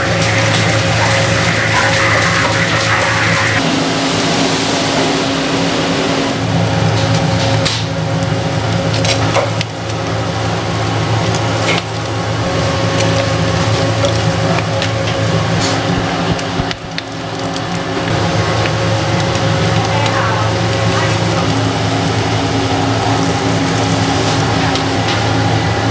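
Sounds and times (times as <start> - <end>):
machine hum: 0.0 - 25.9.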